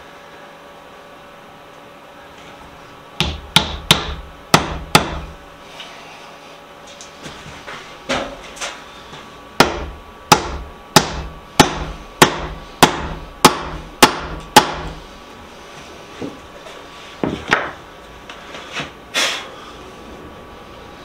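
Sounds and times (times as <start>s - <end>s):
hammer striking wood: 3.2s - 5.3s, 9.6s - 15.0s.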